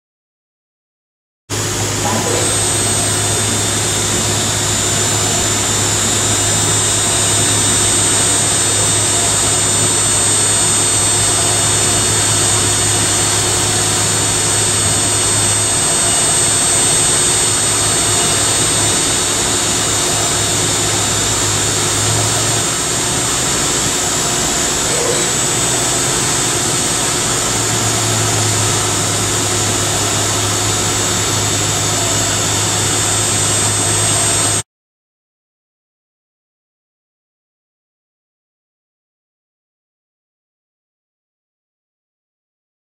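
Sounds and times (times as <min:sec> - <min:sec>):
spindle whining with deburring brush: 0:01.5 - 0:34.6.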